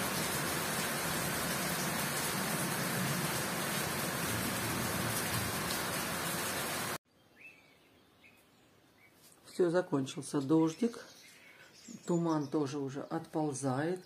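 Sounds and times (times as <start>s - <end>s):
heavy rain on leaves: 0.0s - 7.0s
bird chirping: 7.1s - 14.0s.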